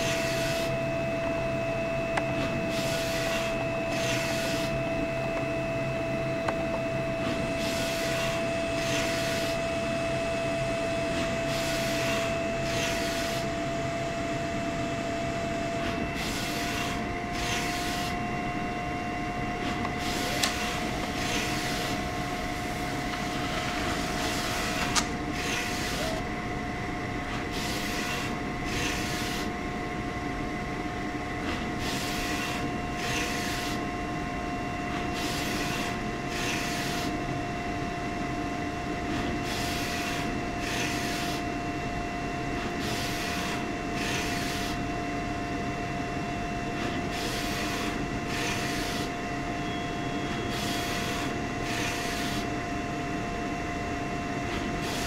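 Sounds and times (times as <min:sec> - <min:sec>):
print carriage rushing: 0:00.0 - 0:00.8, 0:02.2 - 0:04.8, 0:07.0 - 0:13.6, 0:15.5 - 0:18.3, 0:19.5 - 0:26.3, 0:27.3 - 0:29.5, 0:31.4 - 0:33.9, 0:34.9 - 0:37.2, 0:39.0 - 0:41.6, 0:42.5 - 0:44.8, 0:46.6 - 0:49.6, 0:50.2 - 0:52.5, 0:54.5 - 0:55.0
printer motor and fan hum: 0:00.0 - 0:55.0.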